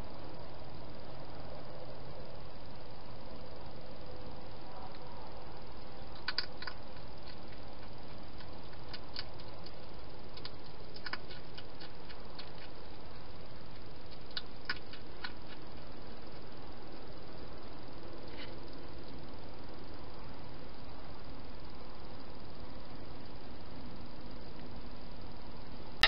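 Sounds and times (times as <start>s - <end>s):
hedgehog eating with crunches: 6.0s - 17.0s.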